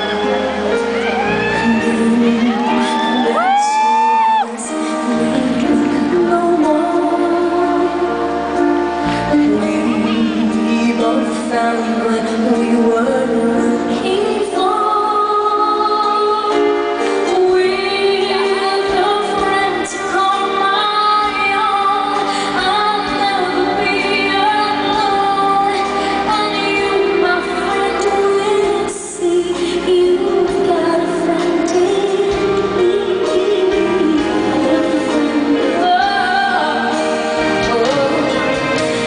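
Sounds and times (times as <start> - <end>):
instrumental accompaniment: 0.0 - 39.0
woman singing into a microphone: 0.0 - 39.0.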